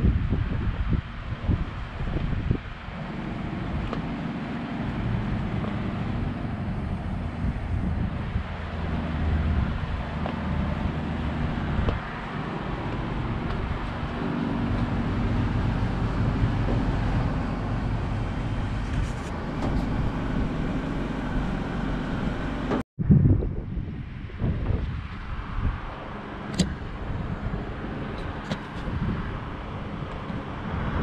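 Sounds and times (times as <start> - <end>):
low hum: 0.0 - 24.7
wind on microphone: 0.0 - 31.0.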